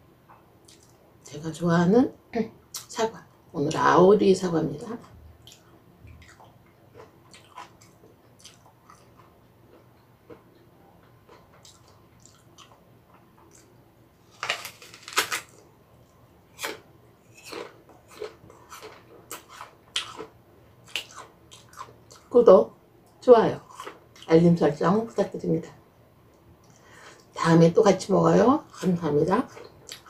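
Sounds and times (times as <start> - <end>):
crunchy chewing: 5.0 - 22.3, 23.6 - 24.3.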